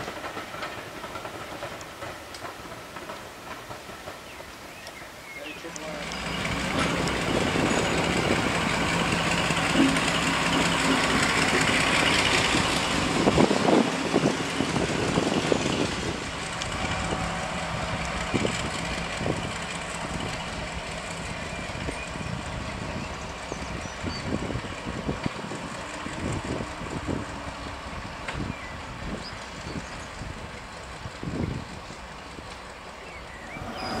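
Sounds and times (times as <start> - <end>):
locomotive engines running: 0.0 - 34.0
clanks: 6.1 - 8.2.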